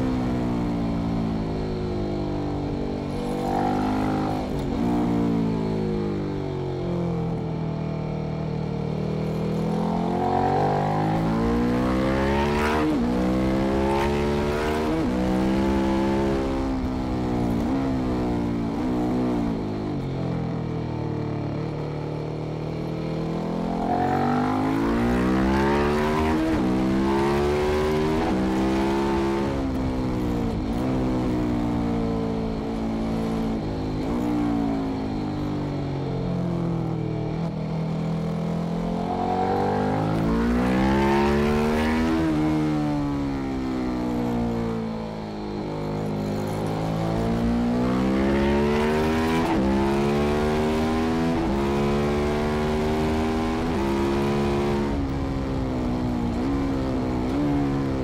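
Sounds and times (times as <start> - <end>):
motorcycle engine accelerating: 0.0 - 58.0
wind and tyre noise: 0.0 - 58.0.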